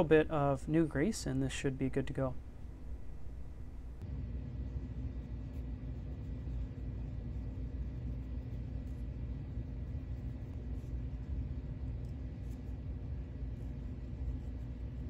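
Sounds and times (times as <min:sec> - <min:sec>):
faint high-pitched whine: 0:00.0 - 0:15.0
low background rumble: 0:00.0 - 0:15.0.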